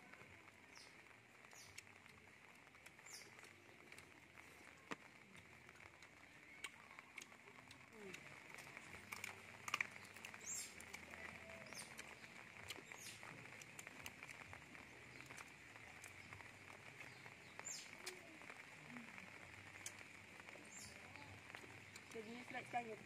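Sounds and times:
faint bird chirps: 10.0s - 13.6s, 14.7s - 22.8s.

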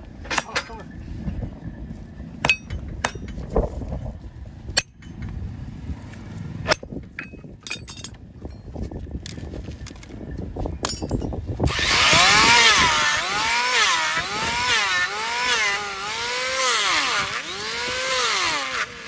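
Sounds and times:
metal tool clinking on horseshoe: 2.4s - 3.4s, 4.8s - 5.3s, 6.7s - 8.8s, 10.8s - 11.4s.

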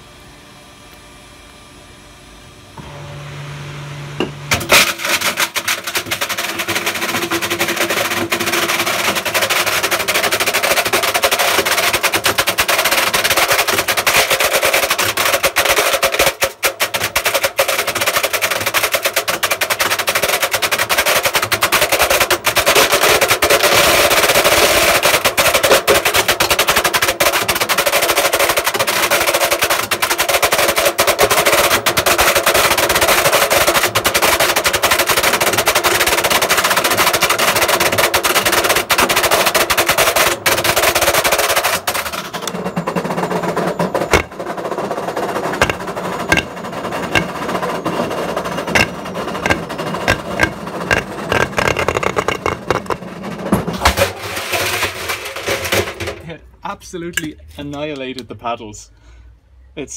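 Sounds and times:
washing machine hum: 0.0s - 56.4s
metal slug hammering in washing machine: 44.1s - 44.4s, 45.6s - 47.4s, 48.7s - 53.0s.

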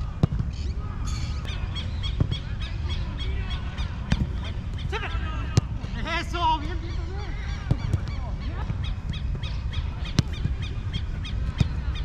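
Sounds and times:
football being kicked: 0.0s - 0.7s, 4.0s - 4.5s, 5.5s - 6.0s, 7.6s - 10.7s, 11.4s - 12.0s
birds chirping: 0.4s - 12.0s.

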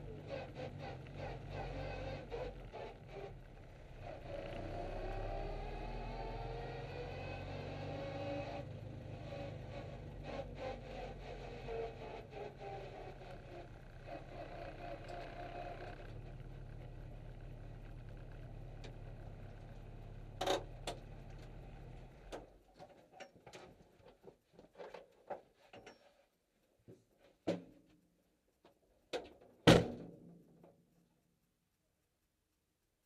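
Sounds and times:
race car engine idling: 12.9s - 22.3s.

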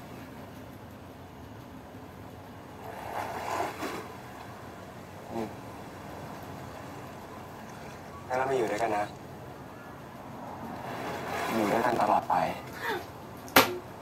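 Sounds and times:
wind: 0.0s - 14.0s
sea surf: 2.8s - 9.1s.

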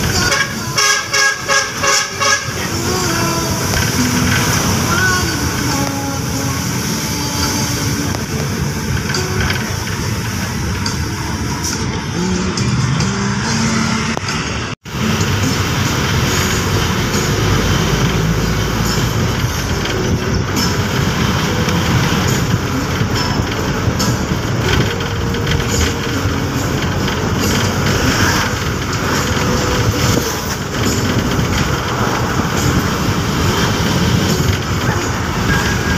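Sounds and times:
vehicle engine: 0.0s - 35.9s
wind noise: 14.2s - 35.9s.

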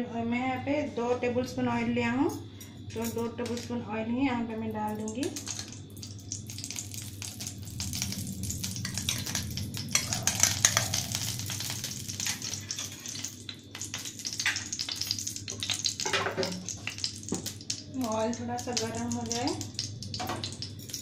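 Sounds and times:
low steady hum: 0.0s - 21.0s
seeds sizzling in hot oil: 5.0s - 21.0s.

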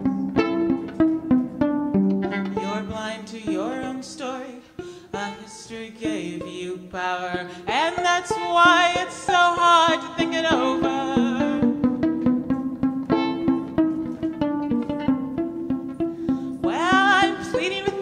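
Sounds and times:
pizzicato violin: 0.0s - 18.0s
woman singing: 2.5s - 11.8s, 16.6s - 18.0s.

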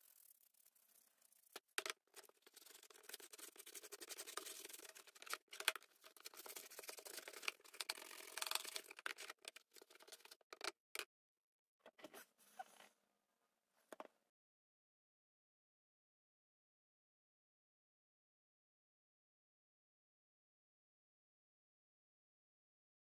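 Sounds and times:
toothbrush scrubbing metal: 0.0s - 10.4s.

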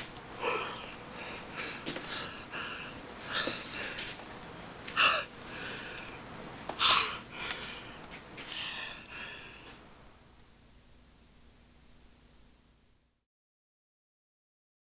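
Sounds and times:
man sniffing and breathing hard: 0.4s - 4.2s, 4.9s - 6.2s, 6.8s - 9.8s.

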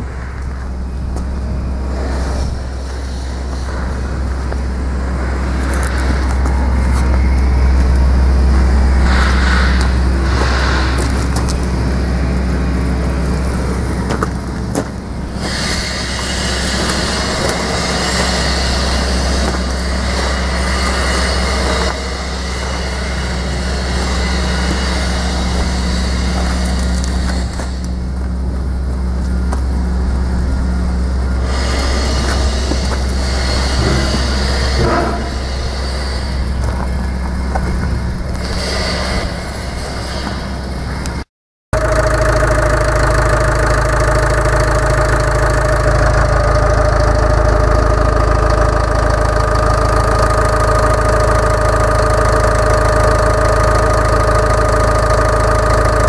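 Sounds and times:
diesel engine idling: 0.0s - 41.2s, 41.8s - 56.0s
bright hiss: 8.6s - 12.1s, 15.2s - 28.3s, 30.3s - 36.9s.

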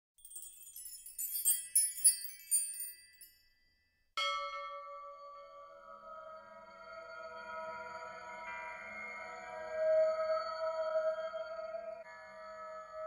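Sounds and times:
high tinkling chimes: 0.2s - 10.3s.

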